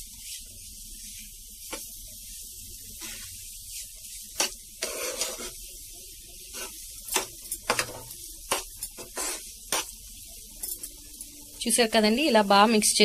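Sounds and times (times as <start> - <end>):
mixture sizzling in a pan: 0.0 - 13.0
metal spoon scraping a pan: 3.0 - 5.7, 6.5 - 10.0.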